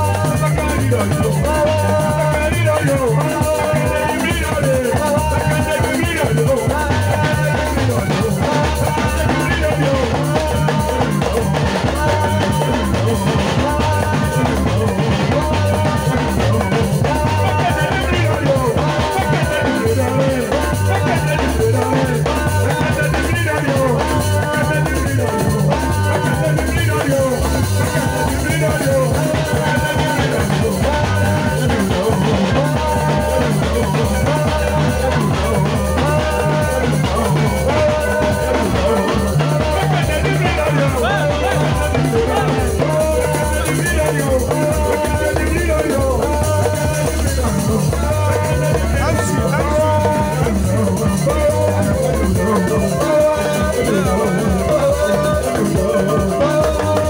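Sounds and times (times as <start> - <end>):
drum kit: 0.0 - 57.0
guitar playing: 0.0 - 57.0
repeating bass line: 0.0 - 57.0.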